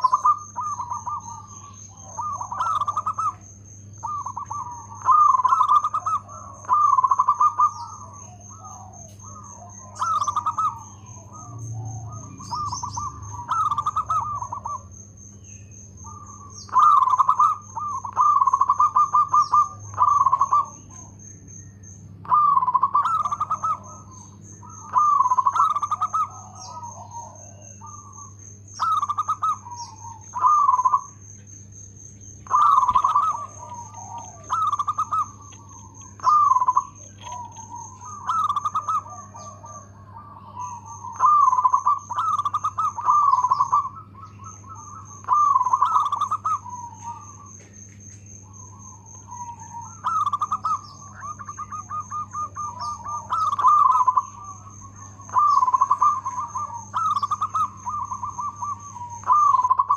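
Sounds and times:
dove cooing: 0.0s - 59.9s.

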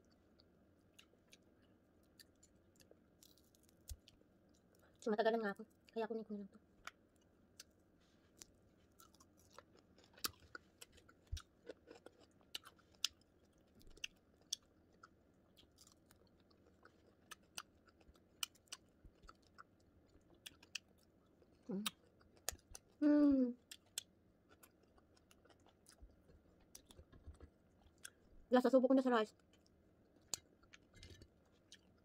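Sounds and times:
chewing crispy fried fish: 0.0s - 5.0s, 6.7s - 28.3s, 29.3s - 32.0s
person humming: 23.0s - 23.6s.

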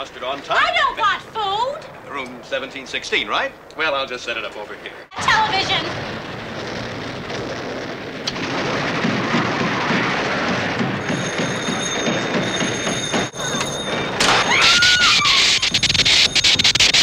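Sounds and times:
low rumble: 5.0s - 12.5s.

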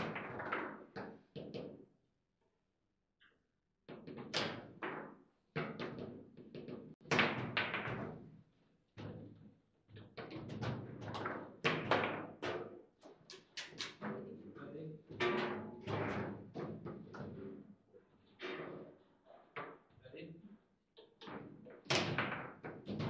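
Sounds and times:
table football knocks and bangs: 4.0s - 8.3s, 10.2s - 12.8s, 21.3s - 23.0s.

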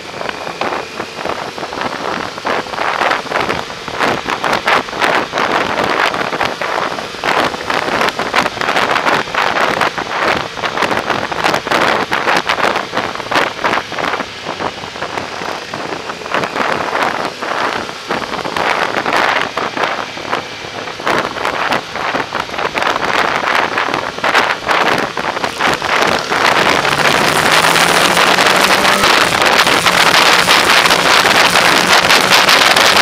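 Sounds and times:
wind buffeting microphone: 0.0s - 33.0s
motorbike engine running: 12.5s - 33.0s.

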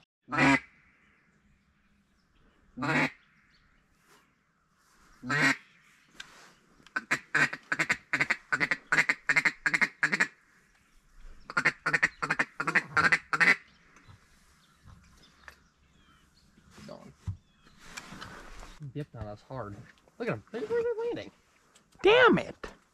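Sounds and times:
duck call quacks: 0.3s - 0.7s, 2.8s - 3.2s, 5.2s - 5.6s, 7.0s - 10.3s, 11.5s - 13.6s.

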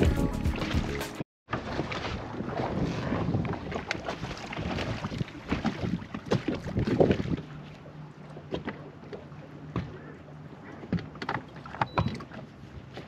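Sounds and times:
waves slapping boat hull: 0.5s - 13.0s
wind buffeting microphone: 2.4s - 7.5s.

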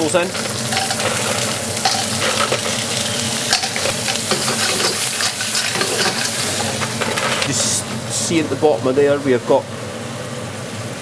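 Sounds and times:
mussels sizzling in hot oil: 0.0s - 8.2s
shells clattering in a wok: 0.3s - 7.2s.

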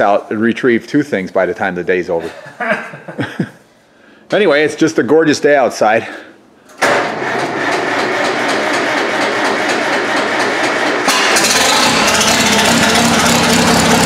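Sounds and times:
tractor engine running: 6.7s - 14.0s.

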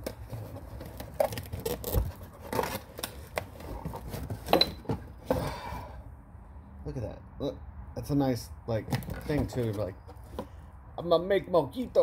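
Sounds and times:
cardboard box rustling: 0.0s - 5.4s, 9.0s - 10.5s.

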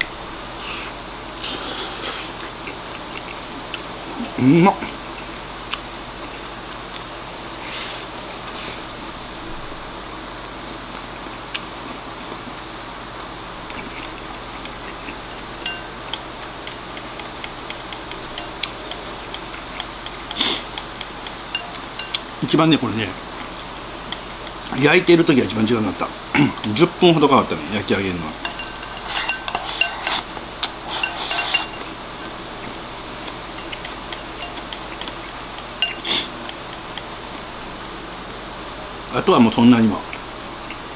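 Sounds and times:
fan hum: 0.0s - 40.9s
ringing clink: 15.3s - 16.2s, 21.5s - 22.2s, 28.4s - 30.1s, 31.0s - 31.8s, 33.6s - 34.6s, 35.8s - 36.0s
chopsticks clicking on ceramic bowl: 15.7s - 22.2s, 28.4s - 30.2s, 33.6s - 37.1s.

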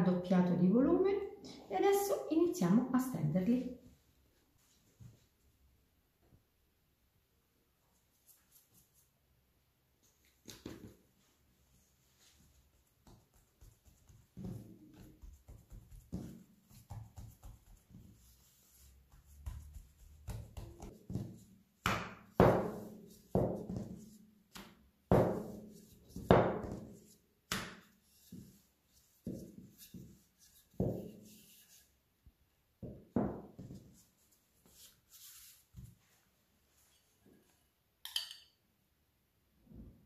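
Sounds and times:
dough thumping on metal worktop: 19.4s - 28.4s.

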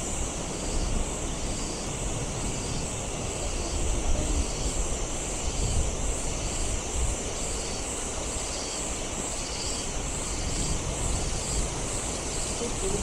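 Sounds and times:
high drone of forest insects: 0.0s - 13.0s
wind rumbling on microphone: 0.0s - 13.0s.

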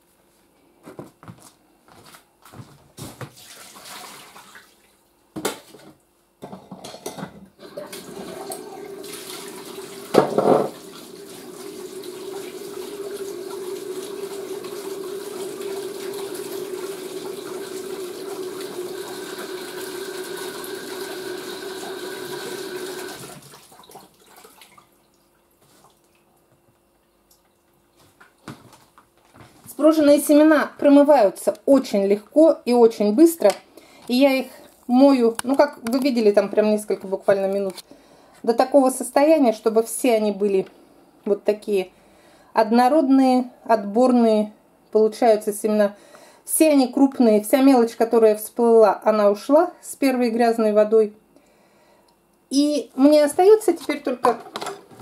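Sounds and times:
water running from a tap: 3.4s - 4.8s, 7.6s - 24.9s.

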